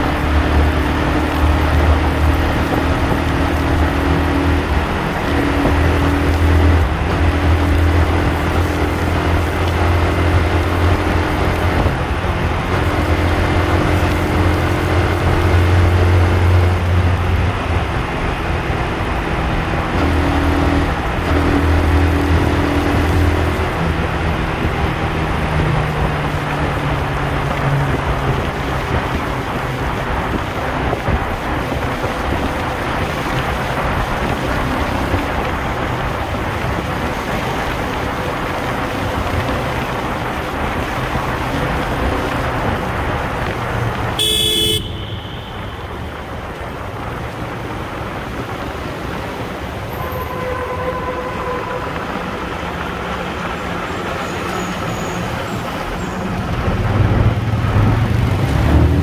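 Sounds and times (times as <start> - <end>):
motorcycle engine: 0.0 - 59.0
traffic noise: 0.0 - 59.0
vehicle horn toot: 44.2 - 46.1, 49.9 - 52.2.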